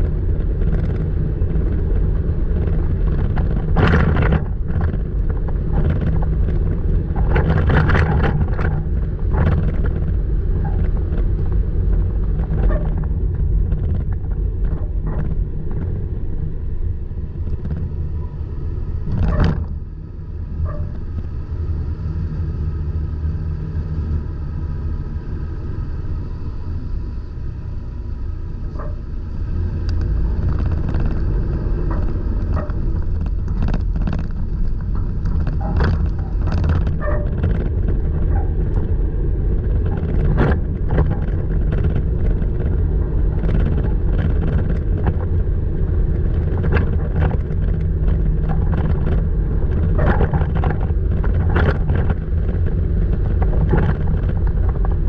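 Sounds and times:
low rumble of engine and tyres: 0.0 - 55.0
truck squeaks knocks and rattles: 12.3 - 15.4, 17.6 - 19.8, 20.6 - 21.4, 30.0 - 39.0, 39.6 - 55.0.

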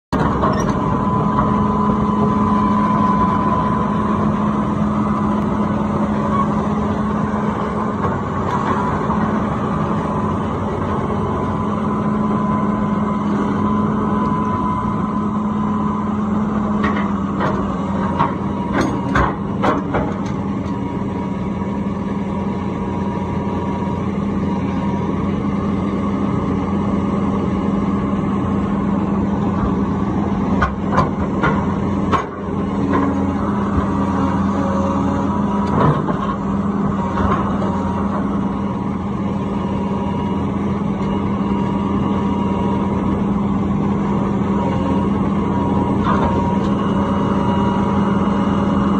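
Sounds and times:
excavator diesel engine running: 0.1 - 48.9
excavator tracks clanking: 0.2 - 9.5, 16.6 - 20.9, 29.4 - 38.7.

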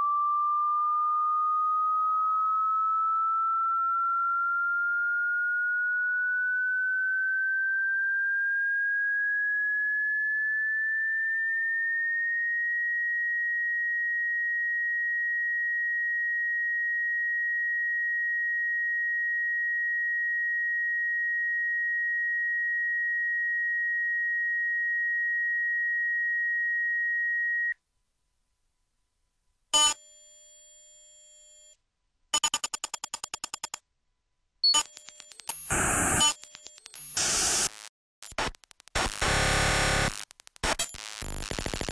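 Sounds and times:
electronic sine tone rising: 0.0 - 27.8, 34.7 - 37.7.

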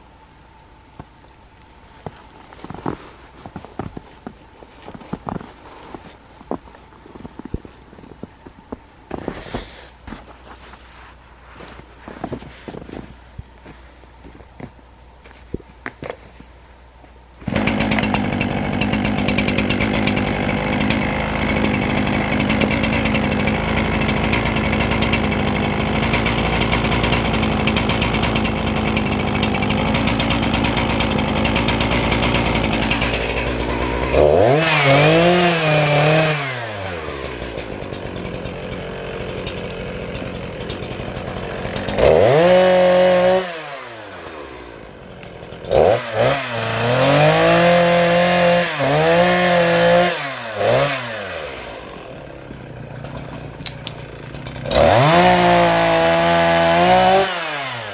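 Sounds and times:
chainsaw running and revving: 17.4 - 57.9.

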